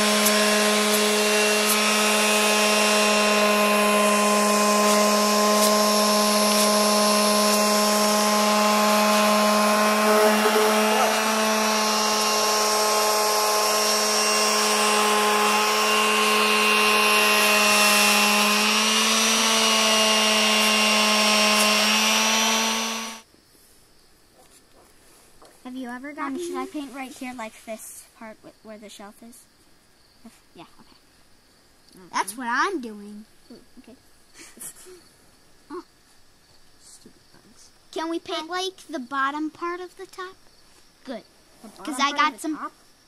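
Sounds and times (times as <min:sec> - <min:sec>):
electric sander buzzing on wood: 0:00.0 - 0:23.3.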